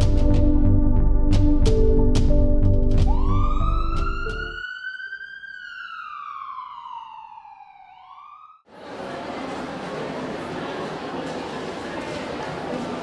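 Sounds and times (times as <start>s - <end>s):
background music with percussion: 0.0s - 4.4s
siren wailing: 3.0s - 8.7s.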